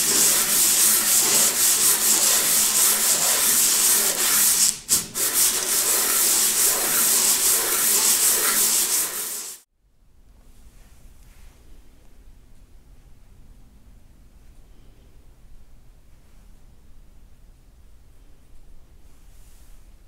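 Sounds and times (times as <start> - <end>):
metal scratching on sandpaper: 0.0 - 9.6.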